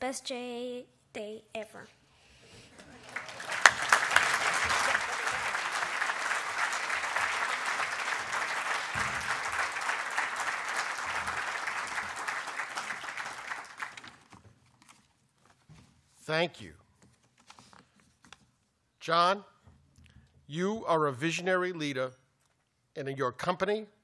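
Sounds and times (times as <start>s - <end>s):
audience applauding: 2.7s - 14.4s.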